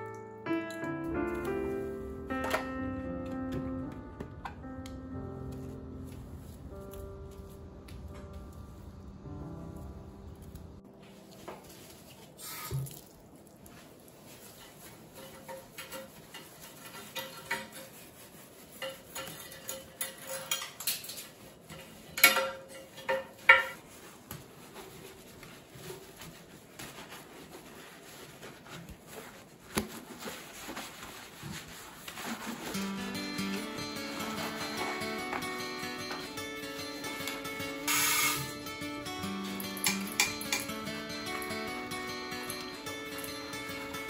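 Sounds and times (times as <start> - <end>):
scrub pad wiping glass: 23.7 - 38.7.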